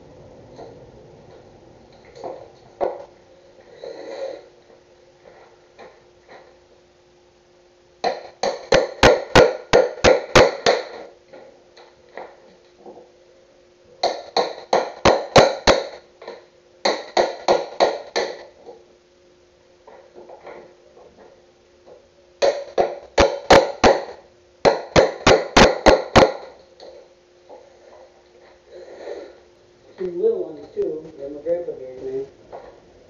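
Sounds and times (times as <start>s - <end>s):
hammer striking chisel: 8.0s - 11.1s, 14.0s - 16.0s, 16.8s - 18.5s, 22.4s - 26.6s.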